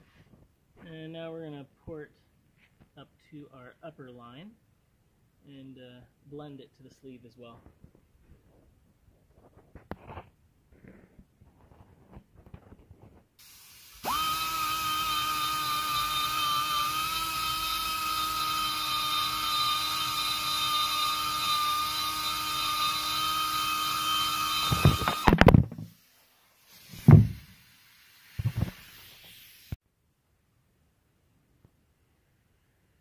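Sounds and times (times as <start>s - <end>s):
die grinder whining: 14.0s - 25.6s
thump: 24.7s - 25.9s, 26.9s - 27.5s, 28.4s - 28.8s.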